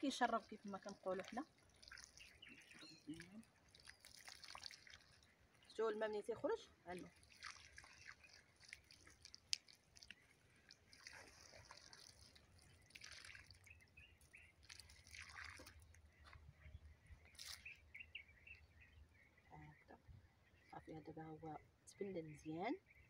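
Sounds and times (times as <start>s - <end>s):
water trickling into soil: 0.0s - 19.8s
faint bird chirps: 1.9s - 4.3s, 16.0s - 23.0s.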